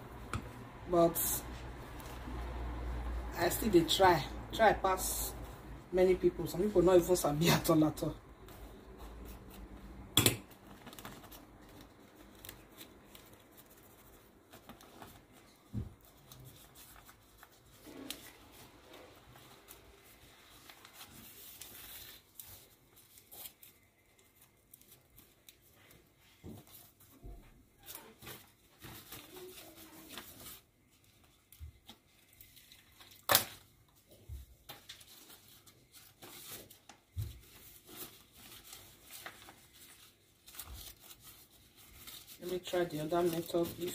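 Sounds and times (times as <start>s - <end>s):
leaves crinkling and rustling: 10.5s - 26.1s, 27.8s - 33.6s, 34.7s - 43.9s.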